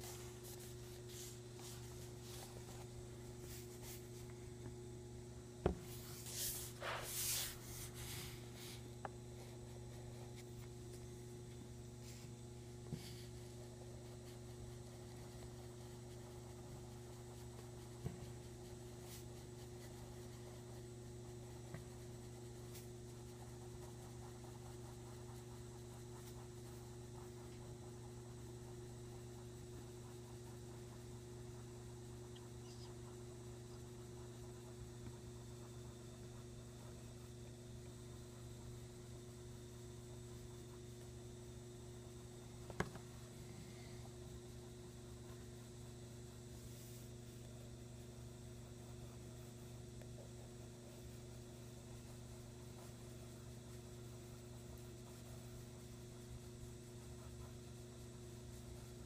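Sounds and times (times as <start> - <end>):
pencil scratching on paper: 0.0 - 4.3, 5.6 - 11.0, 12.0 - 32.2, 46.3 - 59.0
electrical hum: 0.0 - 59.0.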